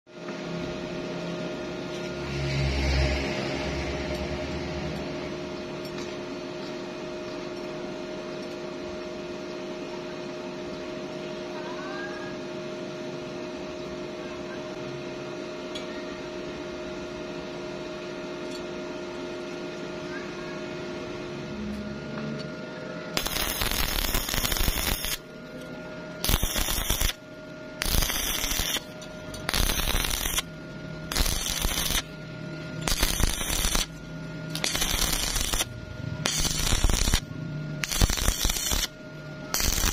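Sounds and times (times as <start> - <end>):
steady hum: 0.1 - 39.9
welding arc crackling: 23.2 - 25.3, 26.2 - 27.2, 27.8 - 39.9.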